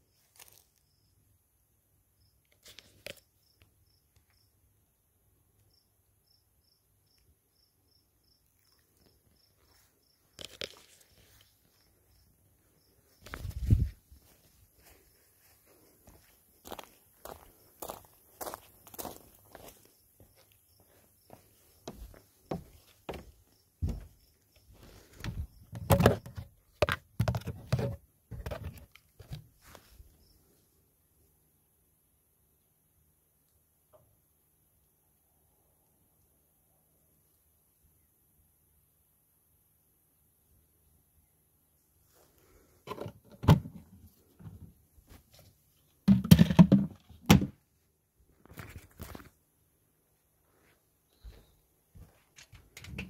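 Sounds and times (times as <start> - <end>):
cricket chirping: 0.0 - 30.7
footsteps on gravel: 13.2 - 24.1.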